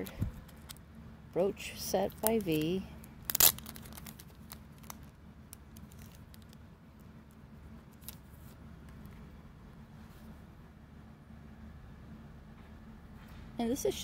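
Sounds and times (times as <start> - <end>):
low steady hum: 0.0 - 14.0
paper and plastic sleeve crinkling: 1.9 - 9.1.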